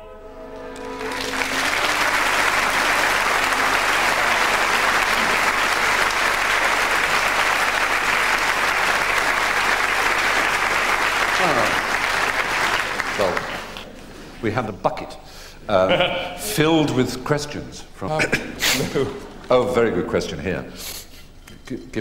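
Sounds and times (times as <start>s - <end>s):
audience applauding: 0.6s - 13.9s.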